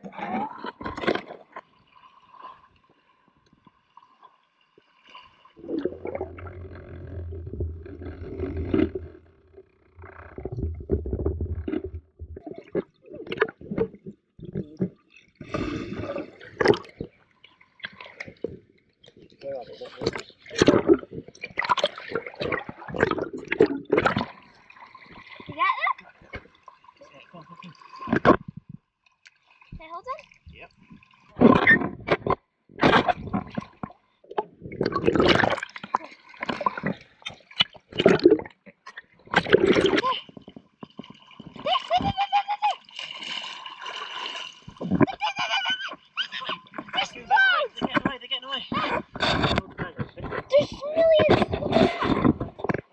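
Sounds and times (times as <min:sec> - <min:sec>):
water sloshing and splashing: 0:00.0 - 0:52.9
muffled underwater rumble: 0:05.6 - 0:15.0, 0:48.7 - 0:52.9.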